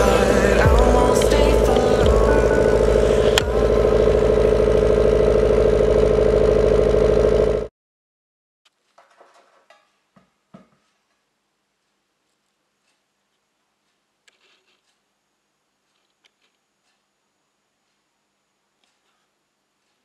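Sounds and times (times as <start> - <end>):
car engine idling: 0.0 - 7.7.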